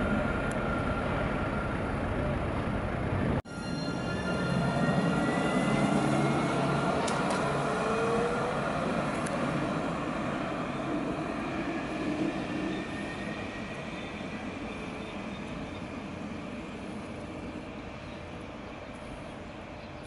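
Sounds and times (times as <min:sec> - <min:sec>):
tram electric motor whine: 0:00.0 - 0:20.0
tram running noise: 0:00.0 - 0:20.0.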